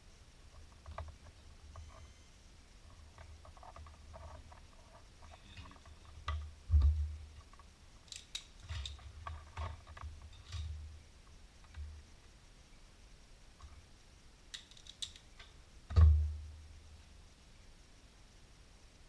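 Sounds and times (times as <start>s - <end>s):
handling wires and small parts: 2.8s - 12.4s, 14.5s - 16.3s.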